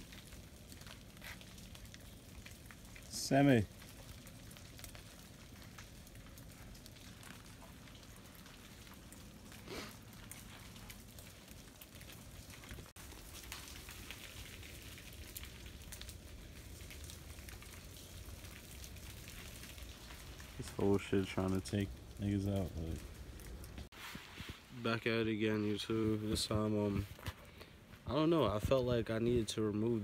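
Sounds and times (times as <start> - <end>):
meltwater dripping: 0.0 - 23.9.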